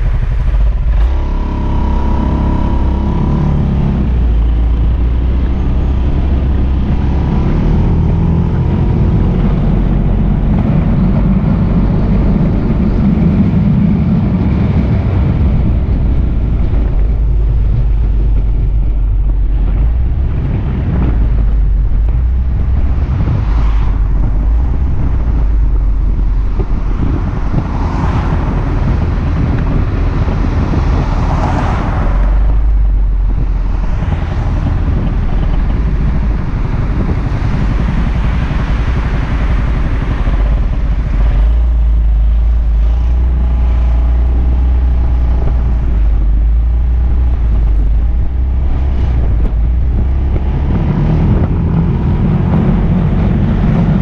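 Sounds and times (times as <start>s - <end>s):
wind rumble on microphone: 0.0s - 54.0s
scooter engine running: 32.0s - 54.0s.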